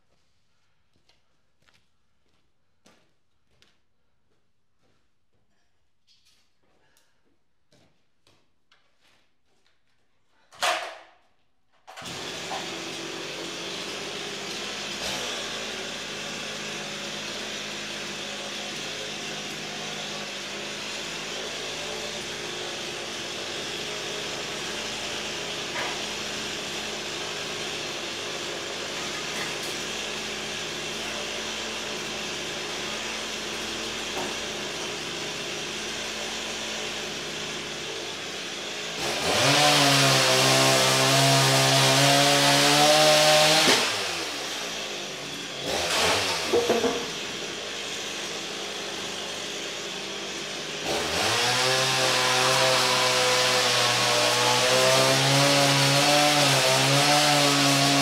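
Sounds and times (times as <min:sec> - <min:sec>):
chainsaw engine idling and revving: 0:12.0 - 0:58.0.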